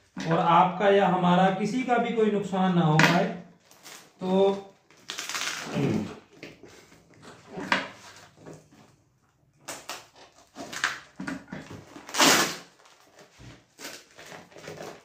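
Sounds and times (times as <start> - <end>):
plastic wrapping crinkling: 3.6 - 7.4, 9.6 - 15.0
plastic ripping: 3.6 - 8.6, 9.6 - 15.0.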